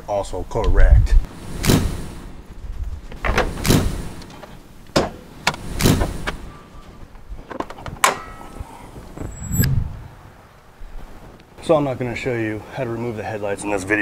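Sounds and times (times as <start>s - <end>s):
hood latch metallic clack: 7.5s - 8.6s.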